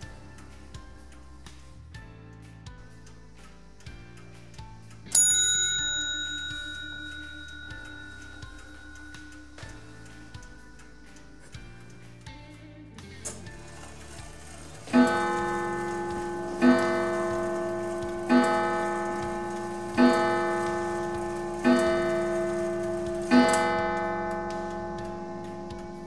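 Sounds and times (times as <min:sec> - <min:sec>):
clock striking on coil gong: 0:05.1 - 0:12.0, 0:13.8 - 0:26.0.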